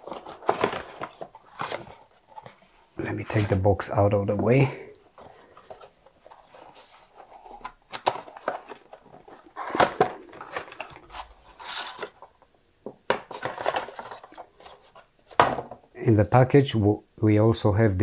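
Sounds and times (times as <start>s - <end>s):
cardboard scraping and rubbing: 5.8s - 12.3s.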